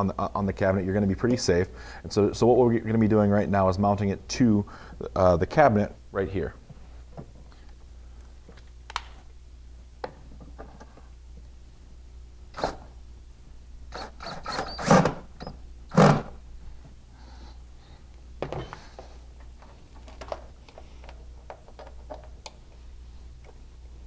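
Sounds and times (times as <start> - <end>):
low steady hum: 0.0 - 24.0.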